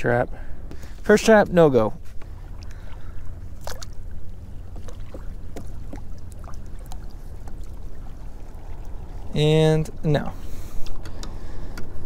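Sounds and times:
wind rumble on microphone: 0:02.2 - 0:12.0
water dripping and trickling: 0:04.7 - 0:10.2.

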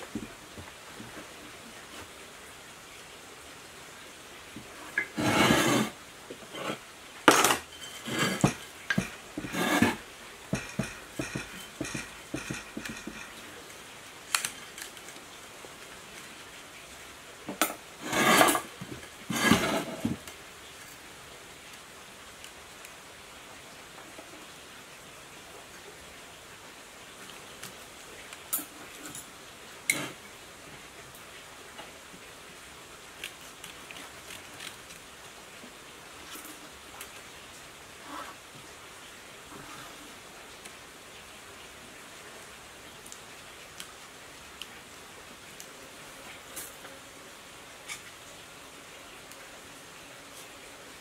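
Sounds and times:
tool scraping and clinking wire: 0:05.0 - 0:05.9, 0:06.5 - 0:13.4, 0:17.6 - 0:18.7.

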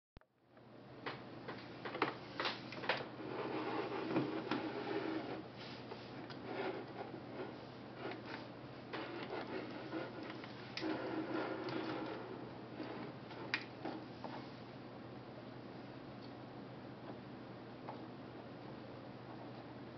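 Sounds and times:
steady low hum: 0:00.3 - 0:19.9
camera rubbing on wooden table: 0:03.2 - 0:14.6.

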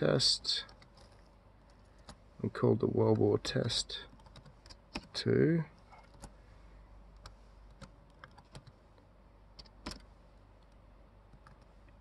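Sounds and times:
keyboard typing: 0:00.6 - 0:02.2, 0:04.1 - 0:05.2, 0:05.9 - 0:06.4, 0:07.2 - 0:08.8, 0:09.6 - 0:11.7.

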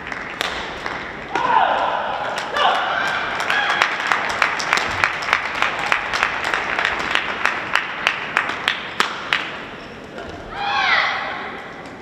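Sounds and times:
applause: 0:00.0 - 0:01.3, 0:03.1 - 0:09.5
rhythmic clapping: 0:00.0 - 0:01.4, 0:03.3 - 0:09.7.

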